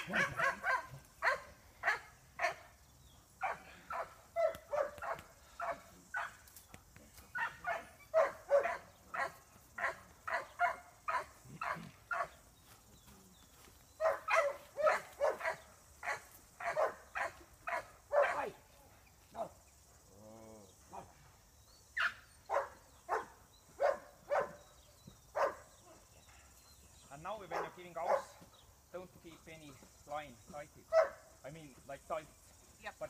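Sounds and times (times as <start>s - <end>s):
dog barking: 0.0s - 2.7s, 3.4s - 6.4s, 7.4s - 12.4s, 14.0s - 18.5s, 22.0s - 24.6s, 25.4s - 26.0s, 27.5s - 28.4s, 30.9s - 31.2s.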